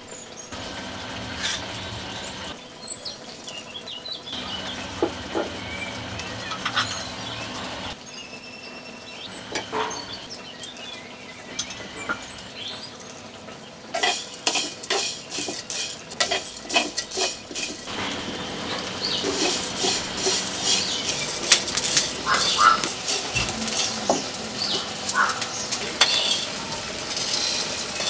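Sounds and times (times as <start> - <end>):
ladle stirring spices in clay pan: 13.9 - 28.0.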